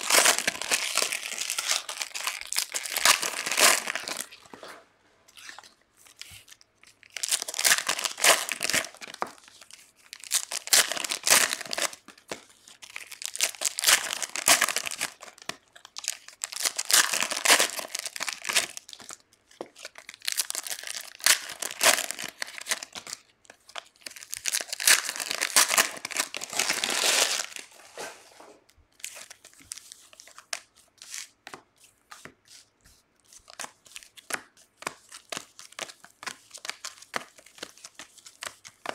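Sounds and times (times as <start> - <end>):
foil wrappers tearing and crinkling: 0.0 - 4.5, 7.0 - 9.2, 10.1 - 12.0, 12.8 - 18.9, 19.9 - 23.2, 24.0 - 27.7
cards rustling and clicking: 29.1 - 38.9.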